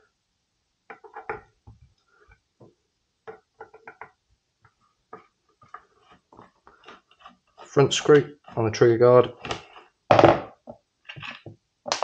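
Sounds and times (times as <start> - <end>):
rifle knocking on wooden table: 10.1 - 10.5.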